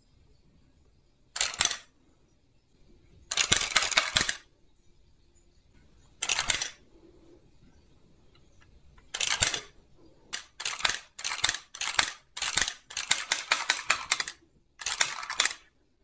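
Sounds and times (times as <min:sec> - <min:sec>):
plastic toy gun clicking: 0:01.4 - 0:01.9, 0:03.3 - 0:04.5, 0:06.2 - 0:06.8, 0:09.0 - 0:09.7, 0:10.3 - 0:15.7.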